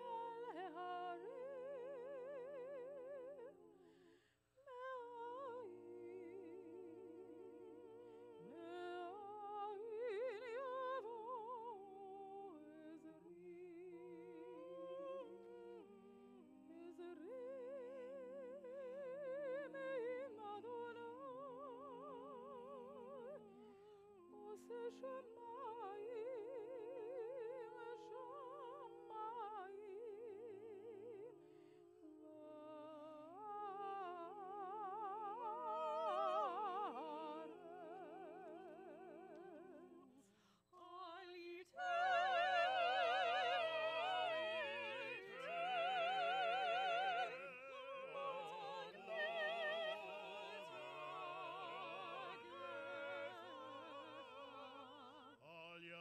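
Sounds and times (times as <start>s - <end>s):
person singing with vibrato: 0.0s - 4.0s, 4.7s - 56.0s.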